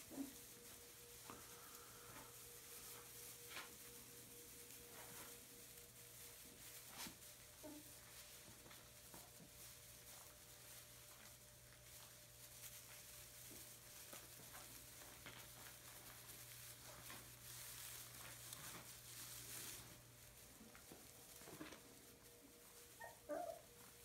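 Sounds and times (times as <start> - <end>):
low steady hum: 0.0 - 24.0
straw rustling and crackling: 0.0 - 24.0.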